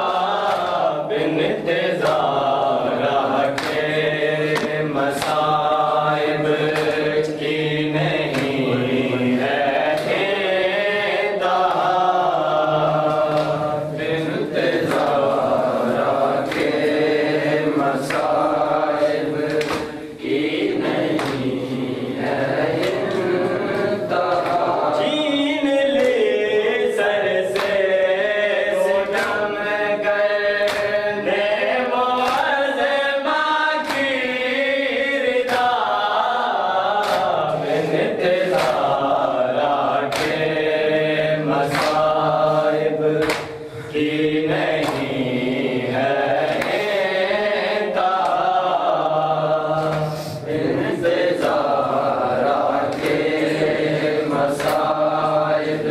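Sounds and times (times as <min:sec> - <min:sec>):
men chanting a lament: 0:00.0 - 0:55.9
hands slapping chest: 0:02.0 - 0:02.3, 0:03.4 - 0:03.9, 0:04.5 - 0:05.6, 0:06.6 - 0:07.4, 0:08.3 - 0:08.6, 0:13.0 - 0:13.6, 0:14.8 - 0:15.3, 0:19.0 - 0:20.0, 0:20.9 - 0:21.6, 0:30.6 - 0:31.0, 0:32.1 - 0:32.6, 0:33.8 - 0:34.2, 0:35.5 - 0:35.8, 0:37.0 - 0:37.5, 0:38.5 - 0:39.1, 0:40.1 - 0:40.5, 0:41.6 - 0:42.2, 0:43.2 - 0:43.6, 0:44.7 - 0:45.3, 0:49.8 - 0:50.5, 0:52.9 - 0:53.5, 0:54.5 - 0:55.3.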